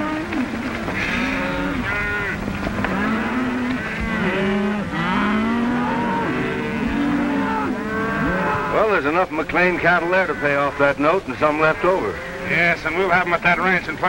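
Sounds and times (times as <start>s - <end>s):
cattle mooing: 0.0s - 14.0s
steady hiss: 7.2s - 14.0s.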